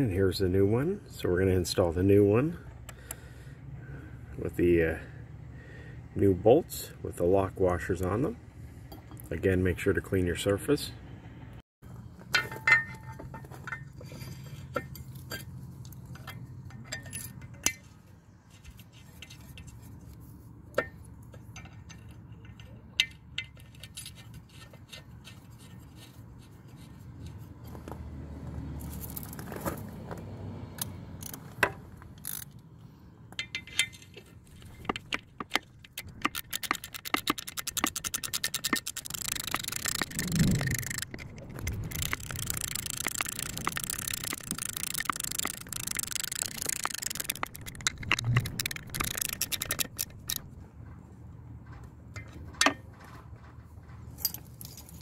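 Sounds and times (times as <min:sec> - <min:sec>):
small metal clinks: 0:33.3 - 0:50.5, 0:54.1 - 0:55.0
socket ratchet clicking: 0:34.8 - 0:50.5.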